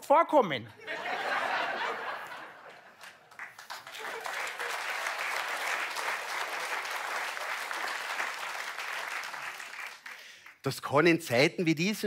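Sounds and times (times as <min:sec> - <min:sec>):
audience applauding: 0:02.3 - 0:10.6.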